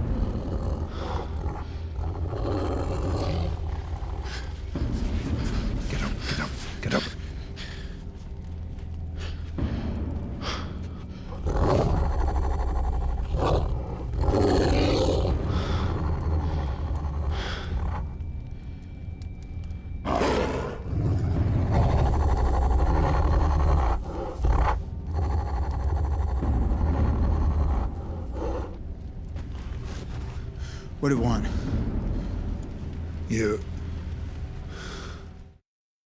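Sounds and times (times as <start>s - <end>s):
wolves growling and snarling: 0.0s - 8.5s, 9.2s - 18.2s, 20.1s - 30.4s
low rumble: 0.0s - 35.6s.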